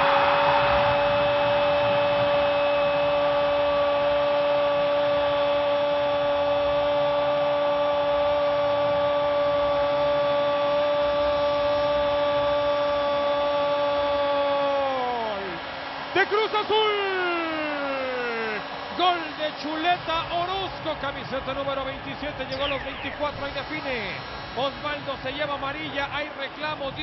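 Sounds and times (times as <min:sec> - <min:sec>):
stadium crowd noise: 0:00.0 - 0:27.0
man shouting goal cry: 0:12.4 - 0:15.6, 0:16.2 - 0:19.6.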